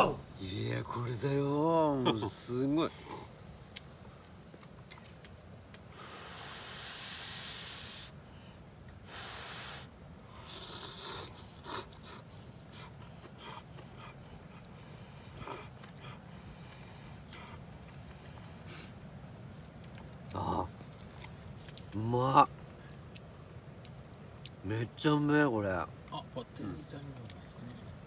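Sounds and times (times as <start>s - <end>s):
person blowing and slurping noodles: 5.9s - 8.2s, 9.0s - 12.2s.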